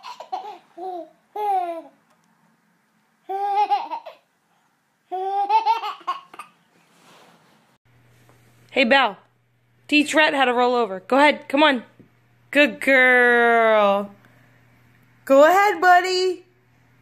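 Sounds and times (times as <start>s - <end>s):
baby laughing: 0.0s - 2.0s, 3.2s - 4.3s, 5.1s - 6.6s.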